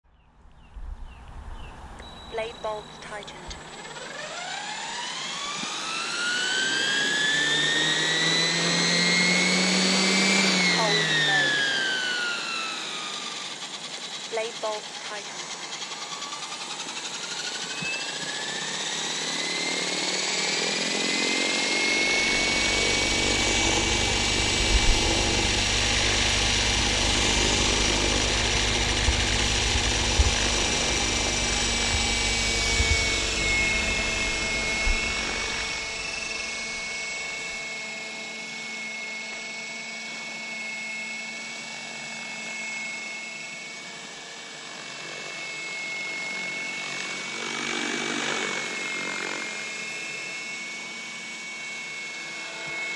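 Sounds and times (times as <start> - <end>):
low rumble: 0.2 - 2.0, 22.3 - 37.3
electric helicopter motor whine: 0.5 - 52.9.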